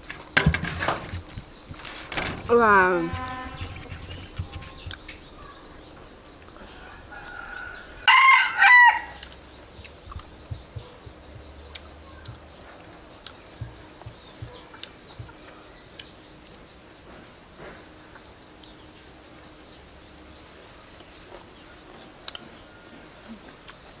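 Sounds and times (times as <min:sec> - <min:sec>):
rooster crowing: 0:06.6 - 0:09.2
faint clicks and taps: 0:09.2 - 0:16.6.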